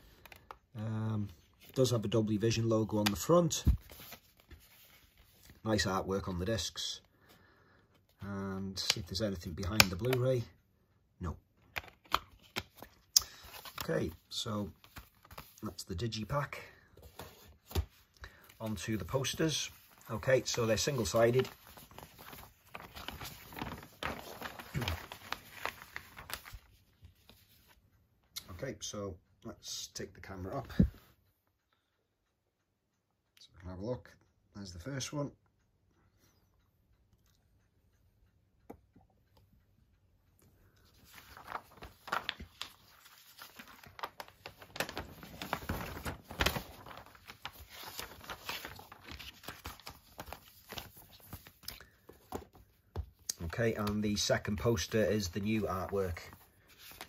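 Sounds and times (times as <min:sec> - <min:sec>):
paper rustling and crinkling: 0:01.3 - 0:05.9, 0:11.7 - 0:27.8, 0:40.8 - 0:57.0.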